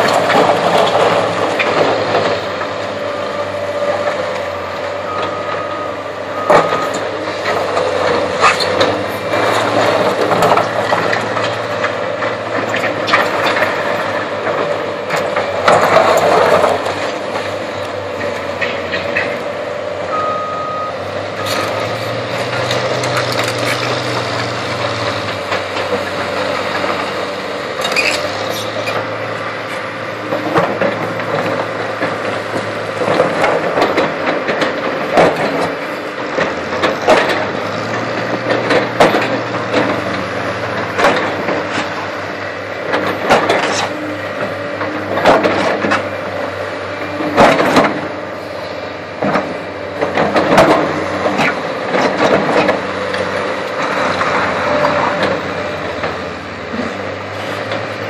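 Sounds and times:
diesel engines running: 0.0 - 58.0
backup alarm beeping: 20.1 - 21.0
excavator bucket scraping: 21.4 - 42.2, 42.9 - 58.0.

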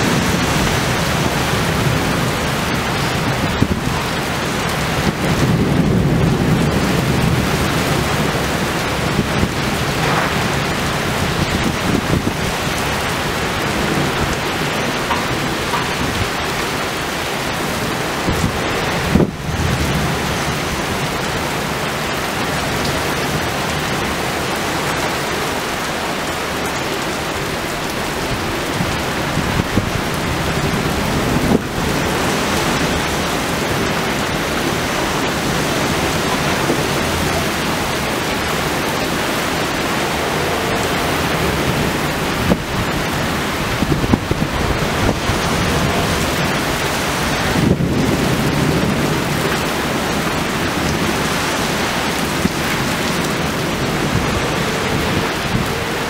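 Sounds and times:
heavy rain pouring: 0.0 - 56.0
thunder rumbling: 0.0 - 56.0.

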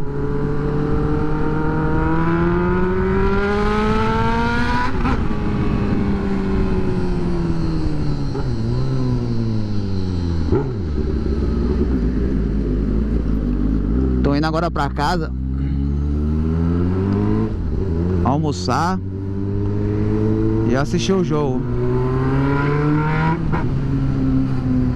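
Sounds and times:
motorcycle engine accelerating: 0.0 - 24.9.

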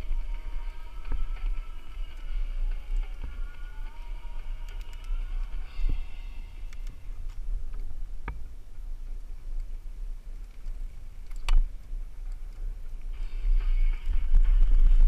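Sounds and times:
bike ticking: 0.0 - 15.0
wind rumble on microphone: 0.0 - 15.0
sharp bike clicks and rattles: 0.1 - 5.8.

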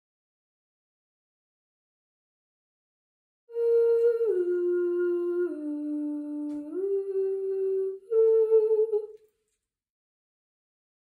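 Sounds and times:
person humming a slow tune: 3.5 - 9.2.

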